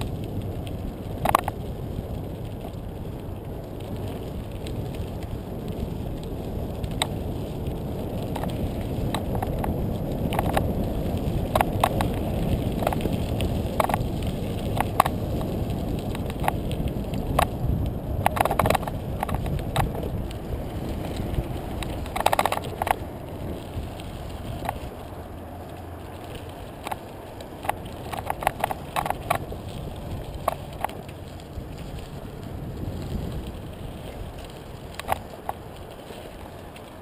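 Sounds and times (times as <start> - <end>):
bike tyres rumbling on gravel: 0.0 - 37.0
stones clicking and rattling: 1.2 - 1.6, 8.2 - 25.0, 25.7 - 31.8, 33.6 - 36.0.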